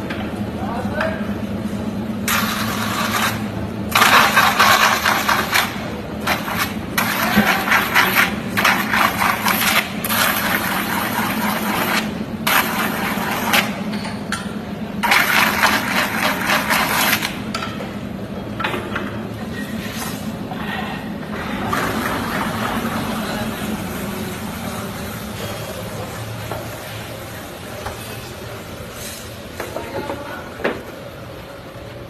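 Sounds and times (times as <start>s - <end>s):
tool scraping spinning metal: 2.3s - 14.3s, 15.0s - 17.4s.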